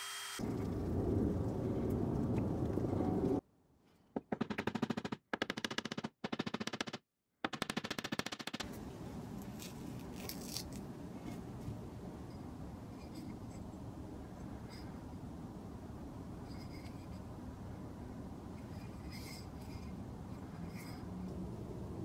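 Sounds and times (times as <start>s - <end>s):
hammer striking nails into wood: 4.2s - 8.6s.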